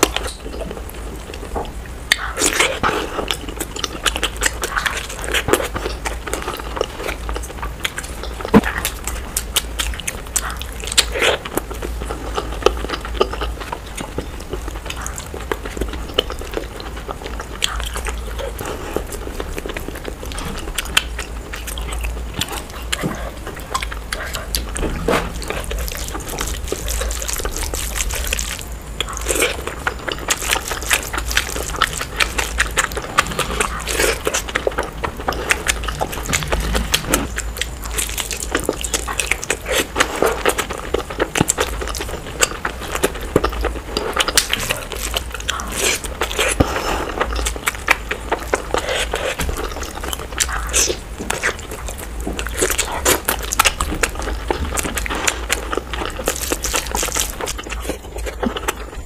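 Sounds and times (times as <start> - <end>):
low steady hum: 0.0 - 59.0
mouth chewing and smacking: 0.0 - 59.0.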